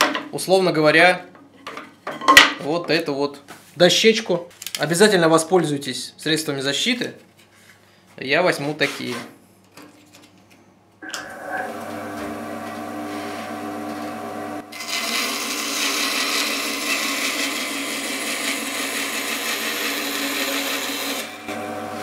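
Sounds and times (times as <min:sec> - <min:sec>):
bandsaw motor humming: 0:11.0 - 0:22.0
saw cutting wood: 0:11.0 - 0:22.0.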